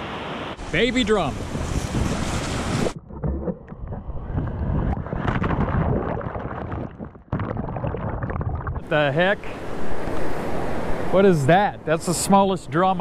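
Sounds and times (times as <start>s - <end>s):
surf: 0.0s - 3.0s, 8.8s - 13.0s
wind: 0.0s - 7.1s, 8.8s - 13.0s.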